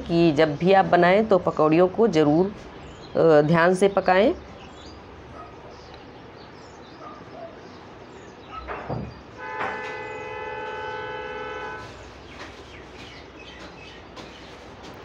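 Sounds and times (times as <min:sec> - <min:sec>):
loud steady horn: 0:09.4 - 0:12.1.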